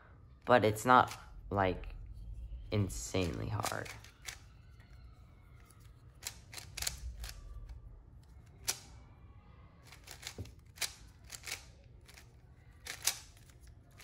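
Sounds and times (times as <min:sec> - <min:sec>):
puzzle cube layers clicking: 0:05.8 - 0:08.9, 0:09.8 - 0:14.0.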